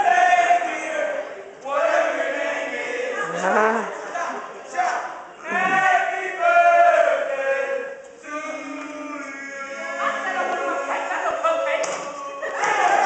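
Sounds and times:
male voices singing together: 4.7s - 13.0s.

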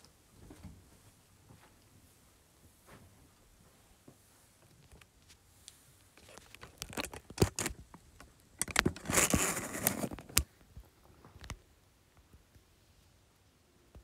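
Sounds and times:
rubbing and crackling on microphone: 0.4s - 11.6s.

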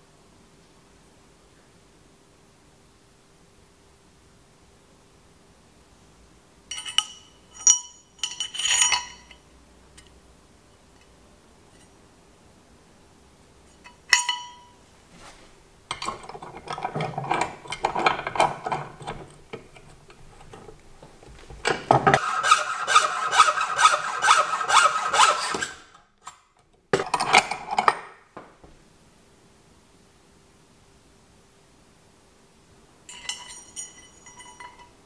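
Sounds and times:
ringing metal clink: 6.7s - 9.4s, 13.9s - 14.8s, 33.1s - 35.0s
hand saw rasping through metal: 22.2s - 25.9s.

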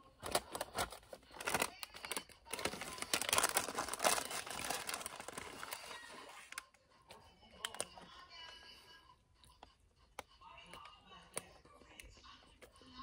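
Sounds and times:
paper bag crinkling and rustling: 0.2s - 6.6s.

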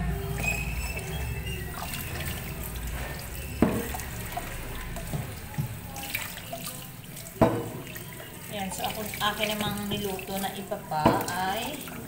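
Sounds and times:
tap water running into sink: 0.1s - 12.0s
board knocking in sink: 3.0s - 4.1s, 7.4s - 8.0s, 11.0s - 11.4s.

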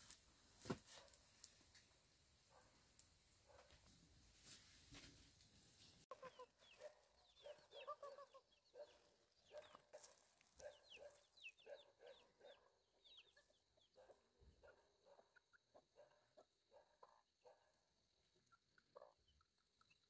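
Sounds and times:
chicks peeping: 6.1s - 17.2s, 18.2s - 20.0s
hen clucking: 6.1s - 17.2s, 18.4s - 20.0s.

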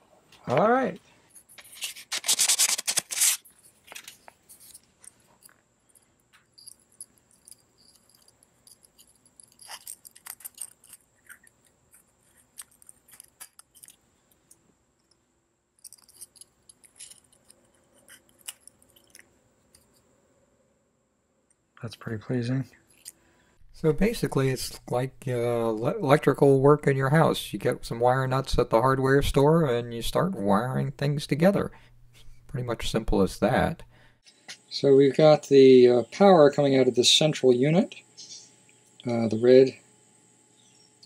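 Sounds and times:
rustling scrape: 1.1s - 5.5s
small parts clicking and scraping: 1.3s - 20.1s, 22.8s - 23.2s.

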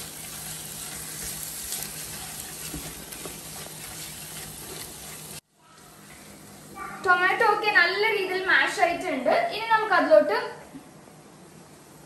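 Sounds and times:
spatula stirring and scraping: 0.0s - 5.4s
food sizzling in a pot: 0.0s - 8.3s.

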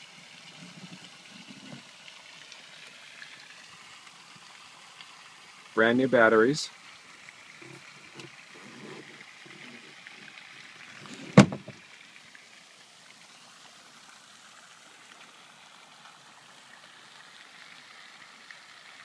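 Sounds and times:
sharp thump: 11.2s - 11.8s.

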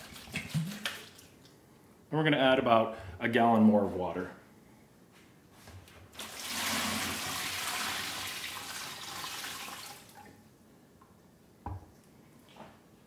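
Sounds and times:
water pouring into plastic bucket: 6.2s - 10.3s.

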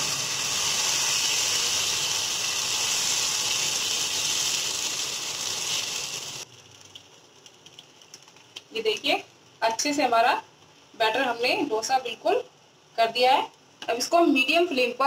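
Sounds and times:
batter sizzling on a hot pan: 0.0s - 9.9s.

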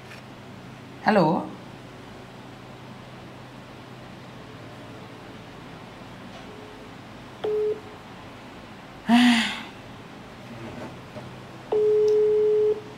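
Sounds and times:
telephone call tone: 7.4s - 7.9s, 11.7s - 12.9s.

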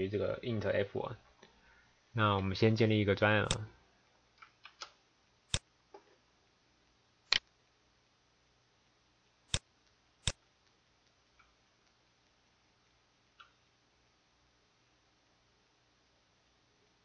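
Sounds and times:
computer mouse clicks: 13.4s - 13.6s.

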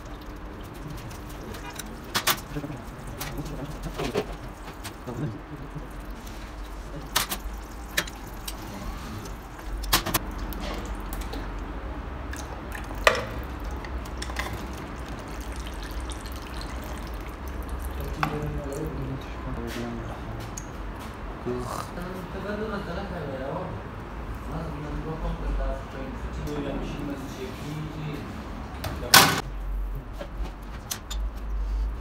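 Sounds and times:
low steady hum: 0.0s - 19.6s.

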